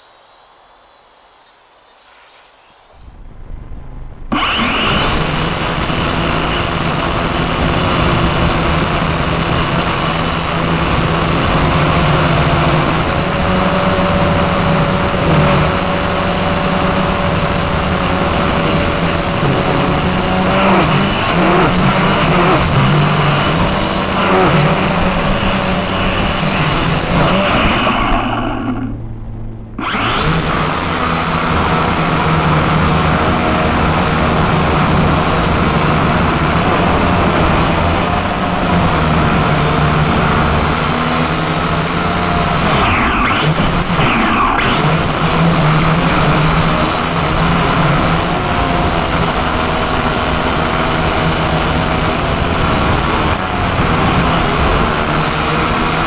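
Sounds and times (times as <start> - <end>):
drone propellers whining: 0.0 - 56.0.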